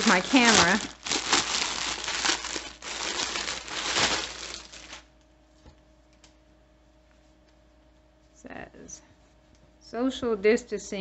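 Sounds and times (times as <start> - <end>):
plastic bag crinkling: 0.0 - 5.1.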